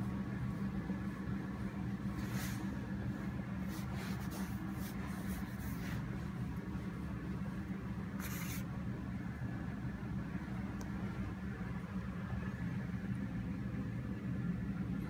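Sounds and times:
soft scratchy rustles: 0.3 - 8.7.

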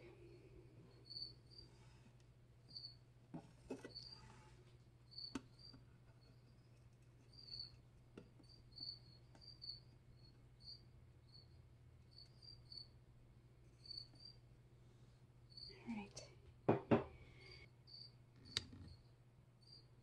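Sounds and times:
faint high insect chirps: 0.9 - 1.7, 2.7 - 3.0, 5.0 - 7.8, 8.4 - 13.0, 13.8 - 14.4, 15.5 - 15.8, 17.4 - 18.2, 18.9 - 20.0.

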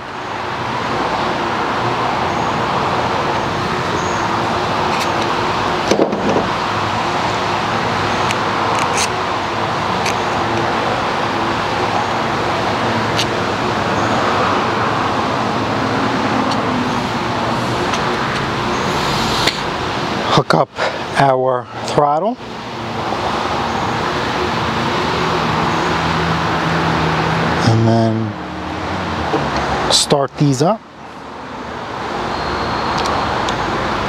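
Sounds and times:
loud mechanical drone: 0.0 - 20.5
clicks of small parts handled: 8.3 - 9.1.

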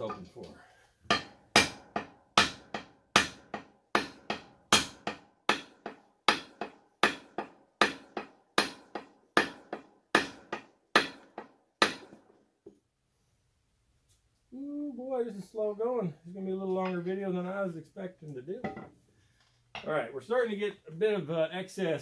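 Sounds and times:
hammer striking wooden handle: 1.1 - 12.4.

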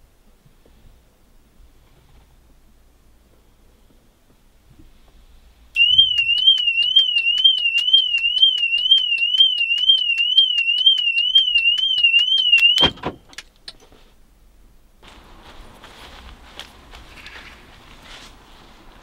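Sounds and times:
car alarm siren warbling: 5.8 - 13.0
regular clicks: 5.8 - 13.9
loud thump: 12.8 - 13.3.

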